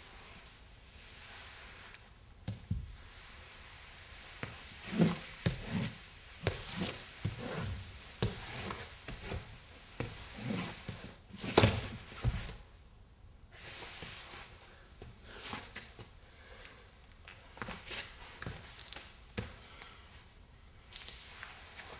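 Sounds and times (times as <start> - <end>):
clothing scuffing on floor: 1.5 - 12.7.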